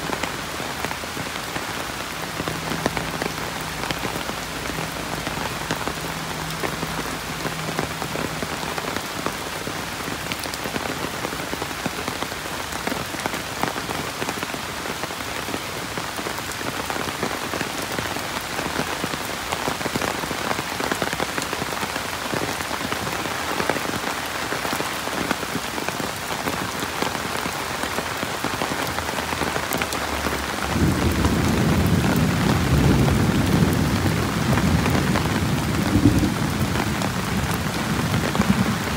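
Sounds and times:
steady rain falling: 0.0 - 38.9
low rumble of thunder: 30.7 - 38.9.

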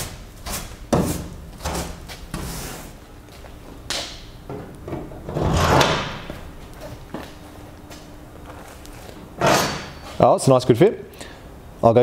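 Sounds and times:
metal knocking and scraping: 4.5 - 6.3, 9.4 - 10.2.

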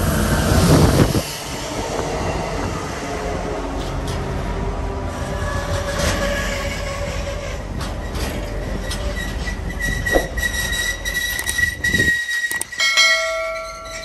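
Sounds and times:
freight train wheels clattering: 5.2 - 14.0
sharp knock: 10.1 - 10.4.

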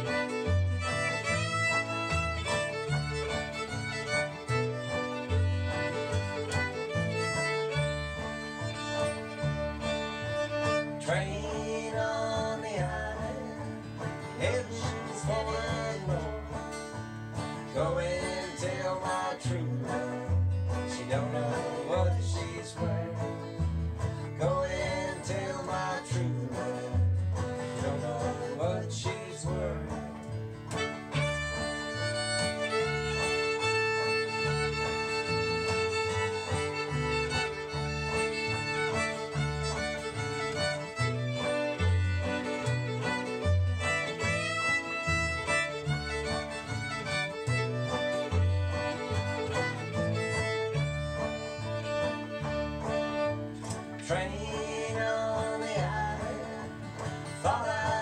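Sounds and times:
fiddle playing lead: 0.0 - 27.7, 30.5 - 58.0
acoustic guitar: 0.0 - 58.0
banjo: 0.0 - 58.0.

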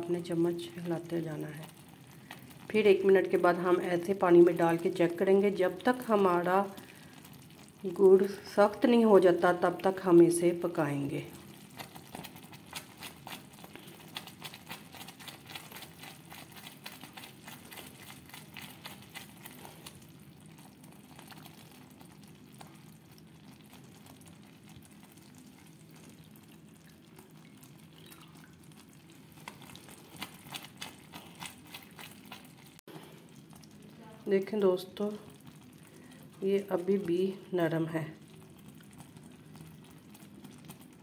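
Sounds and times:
low steady hum: 0.0 - 41.0
syrup bubbling in a pan: 0.0 - 41.0
spoon stirring and scraping: 11.5 - 20.1, 29.4 - 32.8.

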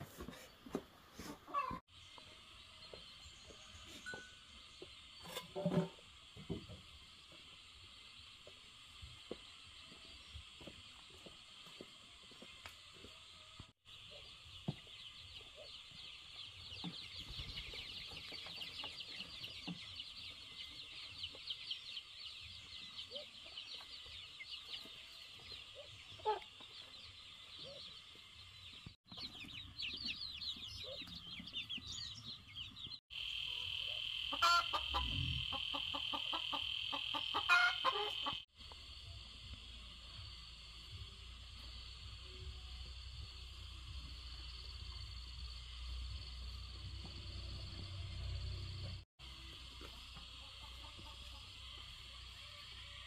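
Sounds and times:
chickens clucking: 0.0 - 1.8, 14.1 - 28.3, 29.1 - 38.5, 49.6 - 52.7.

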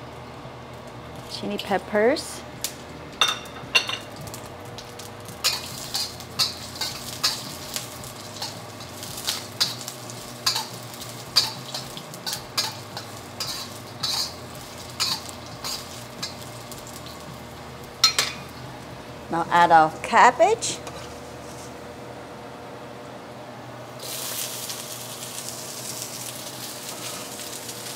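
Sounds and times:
spices sizzling in hot oil: 0.0 - 21.8, 24.0 - 27.9
metal spatula scraping wok: 5.4 - 16.6, 20.7 - 21.8.

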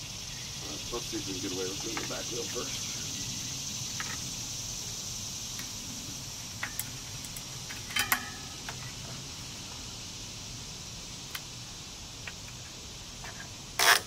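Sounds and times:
steady high hiss: 0.0 - 14.0
clattering rattle with metallic ring: 6.6 - 8.9.

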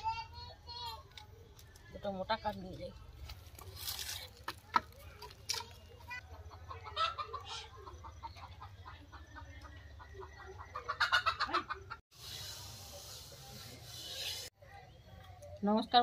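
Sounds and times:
dry firewood sticks cracking: 3.2 - 5.9
chickens clucking: 5.2 - 12.0.

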